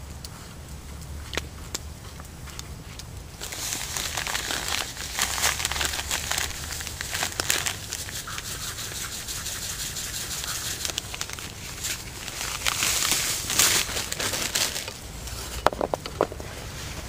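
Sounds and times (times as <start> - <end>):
plastic bag crinkling: 3.4 - 16.4.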